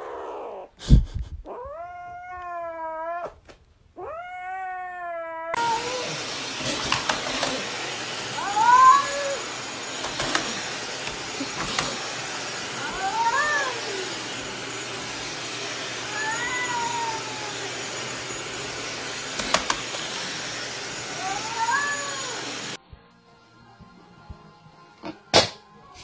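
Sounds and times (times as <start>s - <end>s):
cat yowling: 1.5s - 3.4s, 4.0s - 18.4s, 21.0s - 22.6s.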